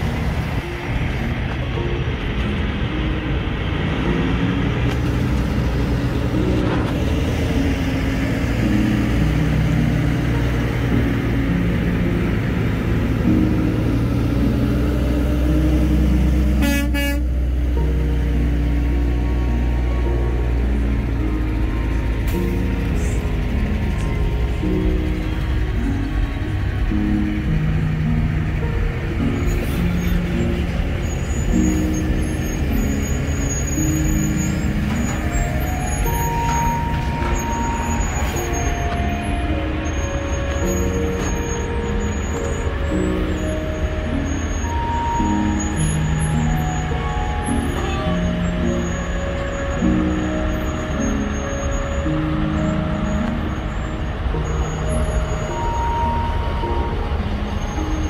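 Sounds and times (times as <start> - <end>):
diesel truck engines droning: 0.0 - 58.0
truck horn toots: 16.5 - 17.6, 47.2 - 49.4.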